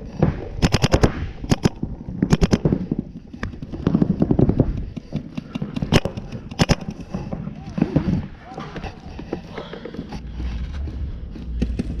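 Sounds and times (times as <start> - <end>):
paintball markers firing: 0.1 - 8.1.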